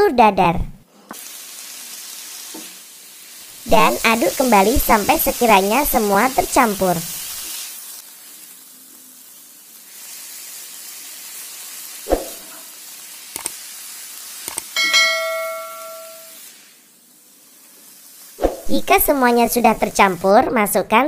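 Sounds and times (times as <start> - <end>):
food sizzling in a frying pan: 0.9 - 20.9
bell-like metallic ring: 14.8 - 16.4.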